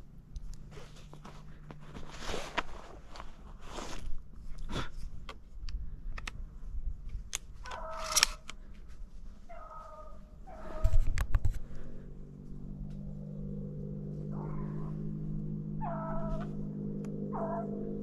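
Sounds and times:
music drone: 12.4 - 18.0
dogs baying: 15.7 - 18.0.

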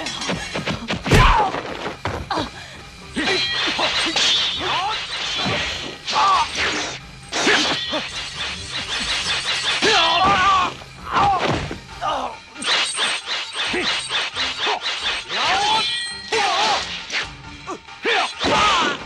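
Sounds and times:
fighters shouting and grunting: 0.0 - 8.2, 9.8 - 12.7, 13.6 - 17.0, 17.6 - 19.0
film music score: 0.0 - 19.0
hits and blade clashes: 3.2 - 11.7, 12.6 - 17.1.

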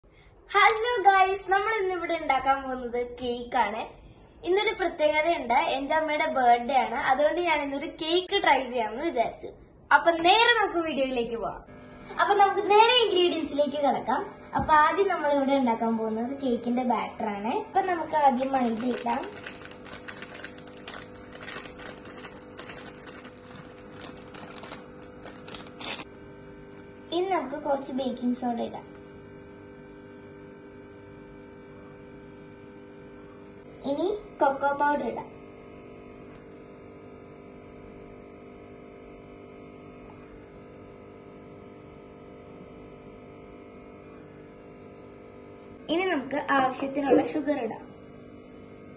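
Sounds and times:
steady electrical hum: 0.1 - 48.9
plastic packet crinkling: 17.9 - 26.2.

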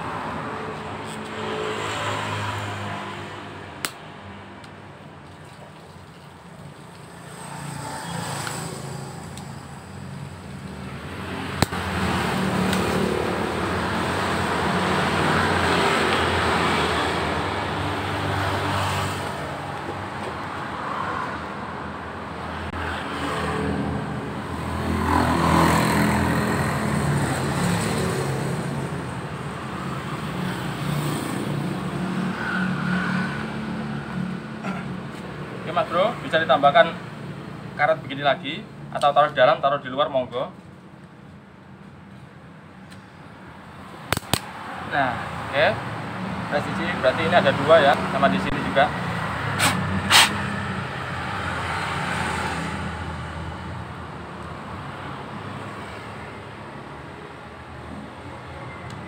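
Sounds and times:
motor vehicles passing: 0.0 - 59.0
sharp click: 44.1 - 44.5.

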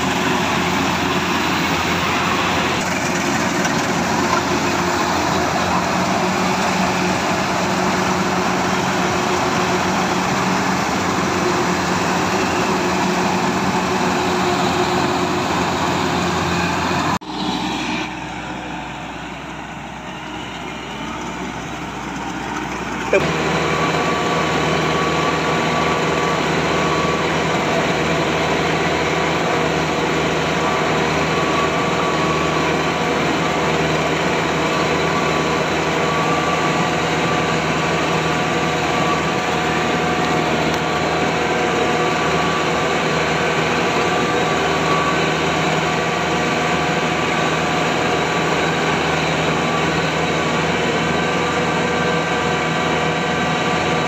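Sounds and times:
combine harvester engine droning: 0.0 - 54.0.

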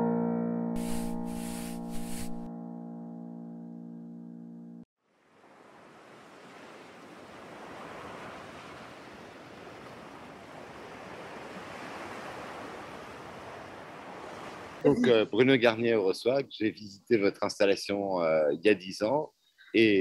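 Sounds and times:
sea surf: 5.1 - 15.3
held jingle chord: 14.9 - 15.4.

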